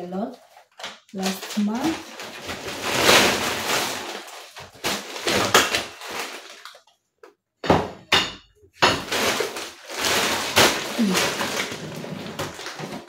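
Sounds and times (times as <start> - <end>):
plastic bag rustling: 0.2 - 6.9, 8.8 - 13.0
items knocking on countertop: 7.6 - 9.4.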